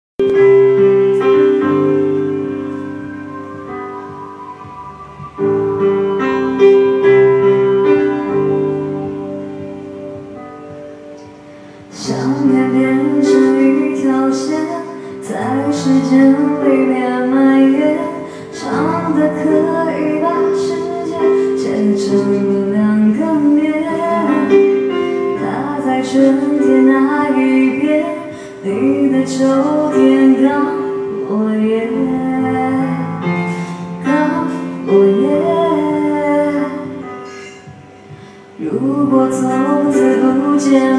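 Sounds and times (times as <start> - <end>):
backing track of held chords: 0.2 - 40.9
woman singing into microphone: 11.8 - 40.9.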